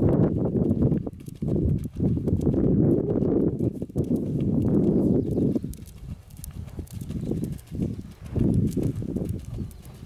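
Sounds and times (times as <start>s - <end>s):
hoofbeats on sand: 0.0s - 10.0s.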